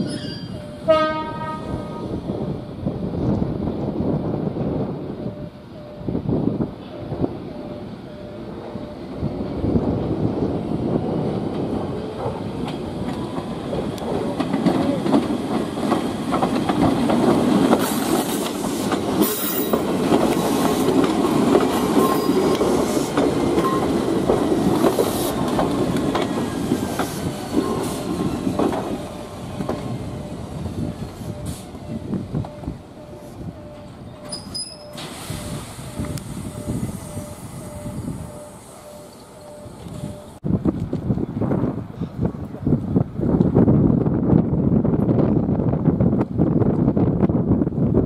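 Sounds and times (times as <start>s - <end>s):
train wheels squealing: 0.0s - 0.9s, 21.9s - 24.0s, 34.1s - 40.4s
train wheels clicking over rail joints: 11.3s - 41.2s.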